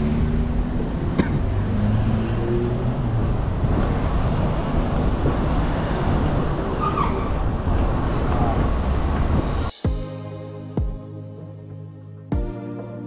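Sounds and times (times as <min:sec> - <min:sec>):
engine hum: 0:00.0 - 0:09.4
road traffic rumble: 0:00.0 - 0:09.8.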